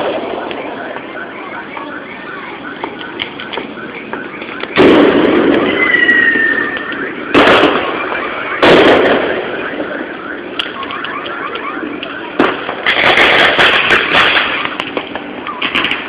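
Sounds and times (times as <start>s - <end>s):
firework crackling: 2.7s - 16.0s
firework bangs: 2.9s - 16.0s
rumble after bangs: 4.6s - 5.8s, 7.3s - 10.7s, 12.4s - 16.0s
firework whistle: 4.7s - 9.9s.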